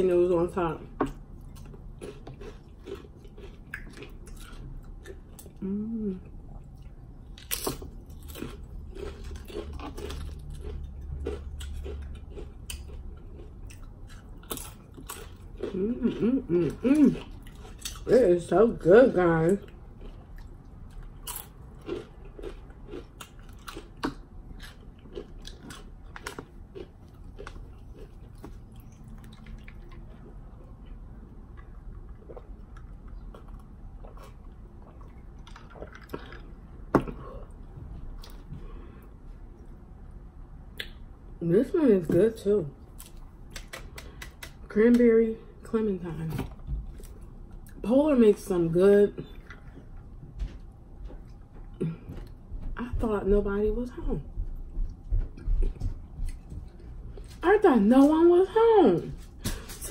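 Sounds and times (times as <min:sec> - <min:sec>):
low steady hum: 0:00.0 - 0:59.9
chewing crunchy chips: 0:00.8 - 0:18.2, 0:19.4 - 0:37.6
wet mouth clicks: 0:43.5 - 0:44.6.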